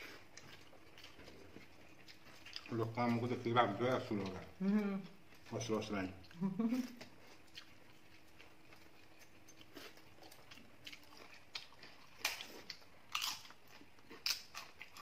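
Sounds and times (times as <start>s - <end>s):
chewing mouth sounds: 0.0s - 3.2s, 6.3s - 15.0s.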